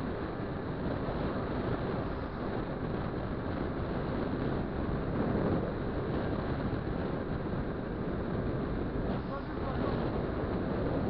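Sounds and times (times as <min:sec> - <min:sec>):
vehicle engine and road drone: 0:00.0 - 0:11.0
wind buffeting microphone: 0:00.0 - 0:11.0.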